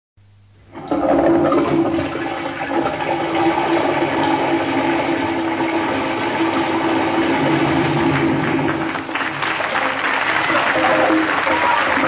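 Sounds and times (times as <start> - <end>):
audience applause: 6.1 - 12.0.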